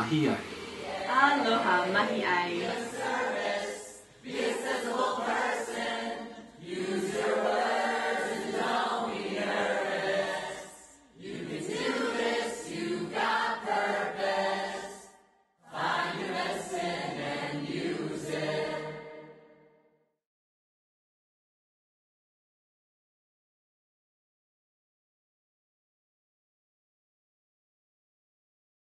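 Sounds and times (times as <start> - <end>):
group of voices singing: 0.0 - 19.7.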